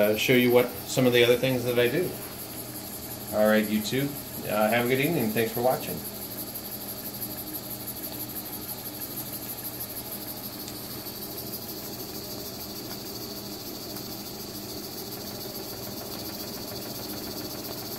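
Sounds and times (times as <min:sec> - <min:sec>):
steady steam hiss: 0:00.0 - 0:17.9.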